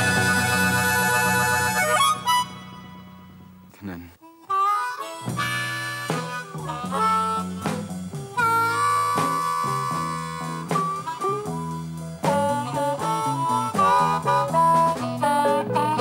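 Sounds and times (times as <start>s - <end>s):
blues band playing: 0.0s - 3.7s, 4.3s - 16.0s
harmonica with bent notes: 0.0s - 16.0s.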